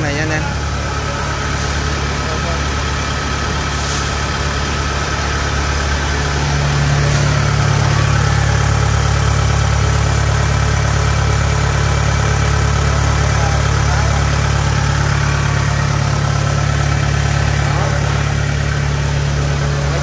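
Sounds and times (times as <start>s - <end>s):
diesel engine idling: 0.0s - 20.0s.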